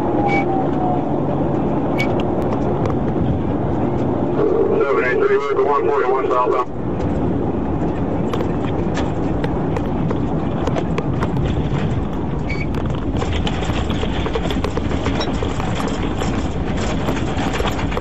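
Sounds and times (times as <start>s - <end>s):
car road and engine noise: 0.0s - 18.0s
clicks and knocks rattling: 7.0s - 18.0s.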